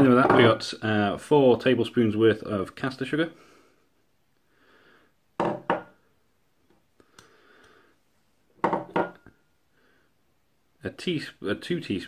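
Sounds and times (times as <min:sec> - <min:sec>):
glass bowls knocking on wood: 0:05.4 - 0:05.9, 0:08.6 - 0:09.2.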